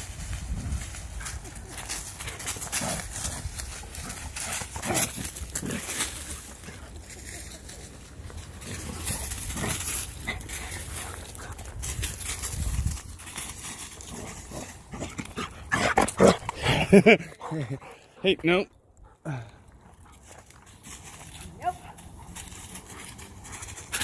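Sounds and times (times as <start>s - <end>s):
dog running through dry leaves: 0.0s - 15.1s, 20.2s - 24.0s.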